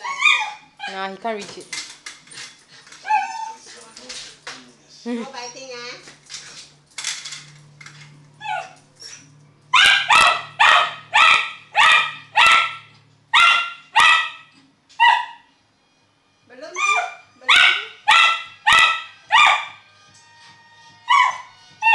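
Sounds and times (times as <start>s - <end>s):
dog yelping: 0.0s - 1.0s, 3.0s - 3.7s, 8.4s - 15.5s, 16.7s - 19.8s, 21.1s - 21.9s
dog barking sharply: 9.8s - 15.4s.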